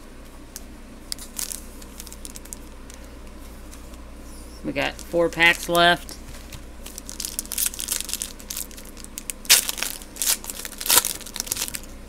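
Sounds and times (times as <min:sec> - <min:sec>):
plastic wrapper crackling: 0:01.1 - 0:03.1, 0:06.8 - 0:11.9.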